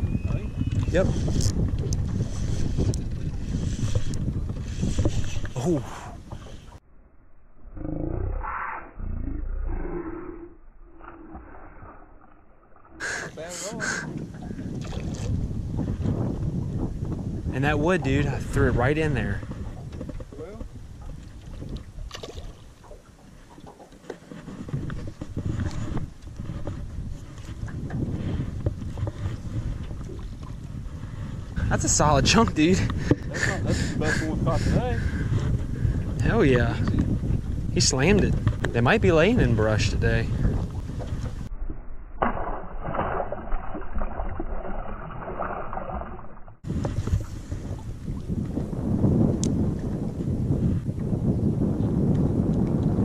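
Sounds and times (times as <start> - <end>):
wind and water rumble: 0.0 - 53.0
water splashing beside a boat: 19.8 - 28.0, 42.2 - 48.2.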